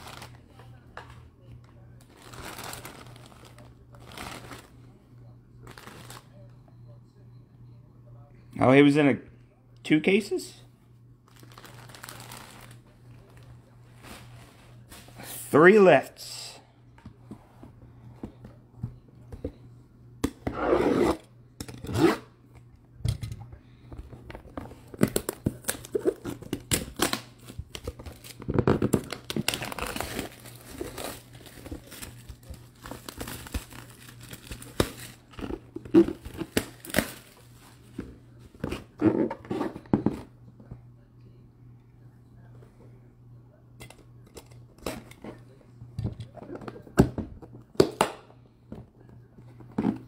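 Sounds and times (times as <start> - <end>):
plastic wrap crinkling and tearing: 0.0 - 0.4, 2.0 - 4.7, 11.3 - 15.1, 25.0 - 37.7.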